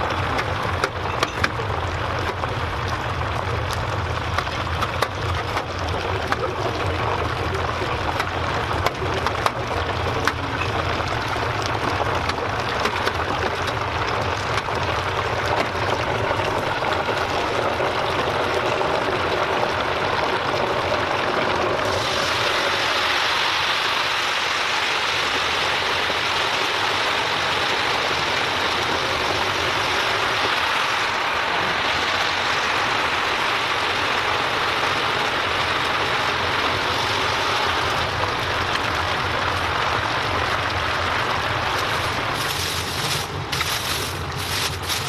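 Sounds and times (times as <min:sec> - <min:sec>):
deep fryer oil sizzling: 0:00.0 - 0:45.0
plastic liner rustling: 0:41.8 - 0:45.0.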